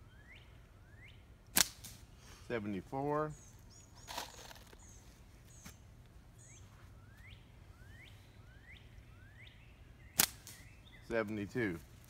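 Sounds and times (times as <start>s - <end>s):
bird chirping: 0.0s - 1.3s, 3.2s - 11.7s
slingshot snap: 1.5s - 2.0s, 10.2s - 10.6s.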